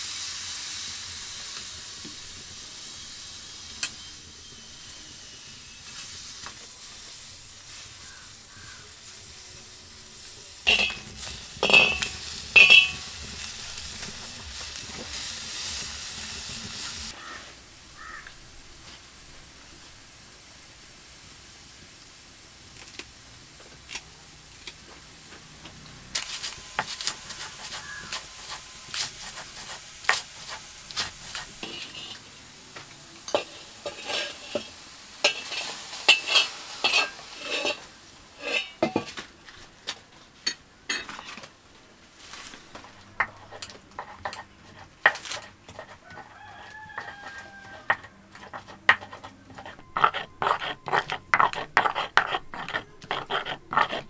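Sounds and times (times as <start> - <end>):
tomatoes sizzling: 0.0 - 54.0
metal ladle scraping in wok: 10.6 - 17.3, 26.2 - 32.4, 33.3 - 39.2, 43.2 - 54.0
stone pestle grinding on slab: 10.7 - 13.4, 26.8 - 32.2, 43.2 - 54.0.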